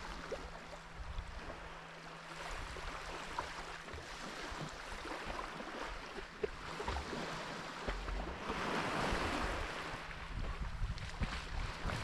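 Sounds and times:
wind rumbling on microphone: 0.0 - 1.8, 6.0 - 12.0
sea waves washing on shore: 0.0 - 12.0.

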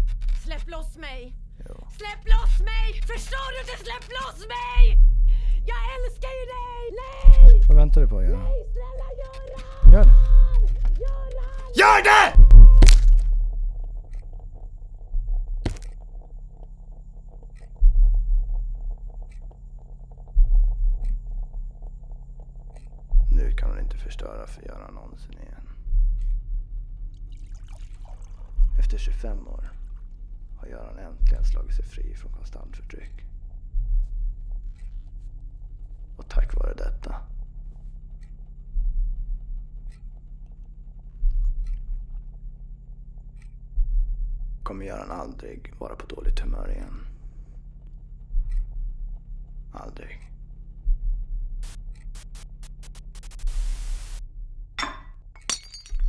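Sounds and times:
deep low booms: 7.2 - 8.6, 9.8 - 10.8, 12.3 - 14.1, 20.3 - 21.6
faint small clicks and rustles: 8.7 - 9.8, 37.6 - 43.8
low rumbling drone: 12.4 - 22.3.

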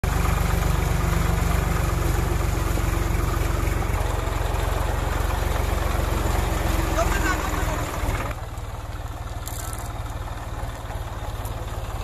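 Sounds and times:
tractor diesel engine running: 0.0 - 12.0.

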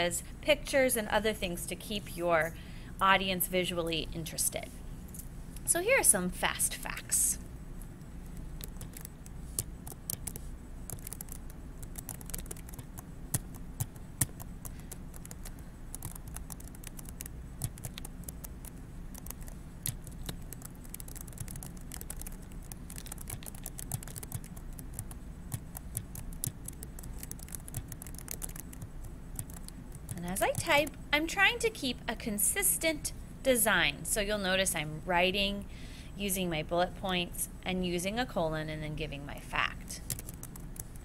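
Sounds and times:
faint low hum: 0.0 - 41.0
keyboard typing: 8.2 - 30.7, 40.0 - 41.0.

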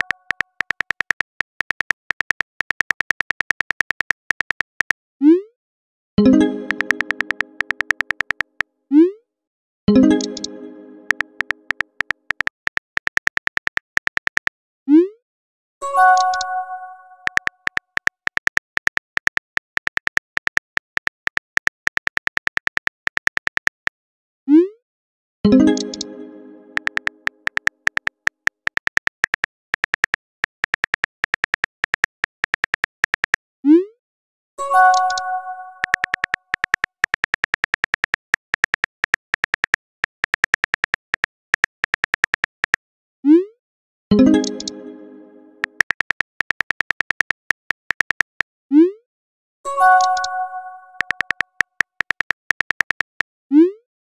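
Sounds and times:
phone keyboard clicks: 0.0 - 5.0, 6.7 - 8.6, 11.1 - 14.6, 17.2 - 24.0, 26.8 - 33.4, 34.9 - 42.8, 45.6 - 48.5, 51.0 - 53.3.

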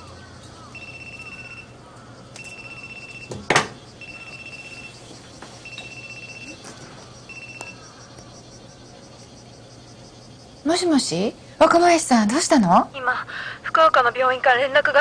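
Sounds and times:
telephone ringing: 0.7 - 8.5.

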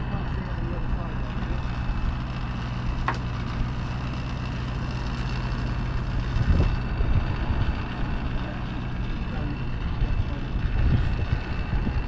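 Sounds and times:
engine humming: 0.0 - 12.0.

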